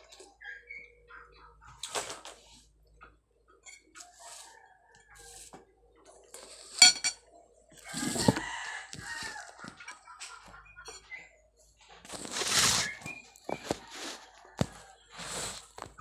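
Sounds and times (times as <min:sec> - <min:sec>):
spoon scraping a bowl: 0:06.3 - 0:07.2, 0:07.8 - 0:09.4, 0:12.1 - 0:14.2.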